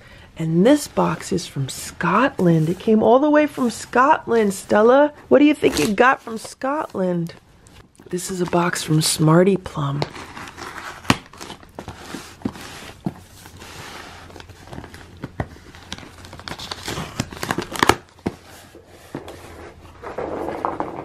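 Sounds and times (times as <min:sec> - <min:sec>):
paper tearing and crinkling: 0:10.1 - 0:18.2.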